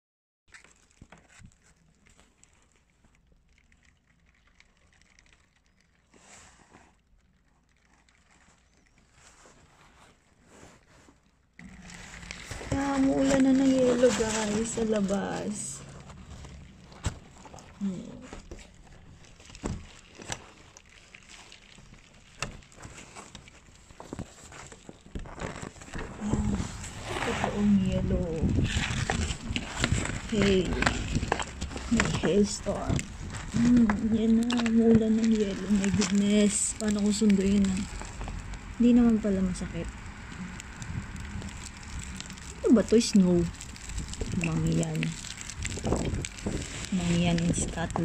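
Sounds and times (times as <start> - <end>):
hail pattering on a window: 11.6 - 48.0
sharp hail clicks: 27.6 - 48.0.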